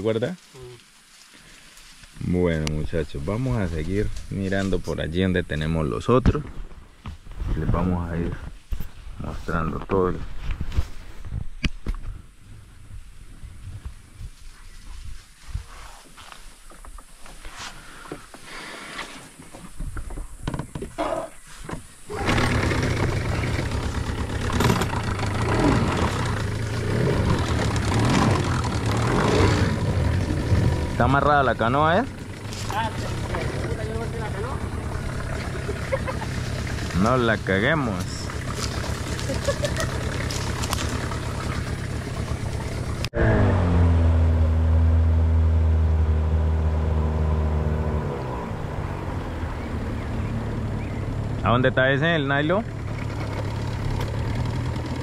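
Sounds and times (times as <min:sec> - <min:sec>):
boat motor running: 0:22.1 - 0:55.0
motor knocking: 0:22.2 - 0:31.0.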